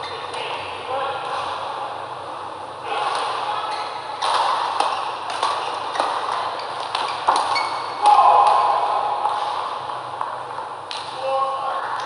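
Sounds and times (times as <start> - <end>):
rackets striking shuttlecock: 4.2 - 11.2.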